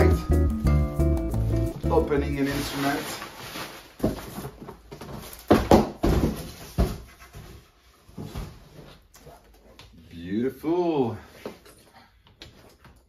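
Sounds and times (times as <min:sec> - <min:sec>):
bubble wrap rustling: 0:01.7 - 0:05.6.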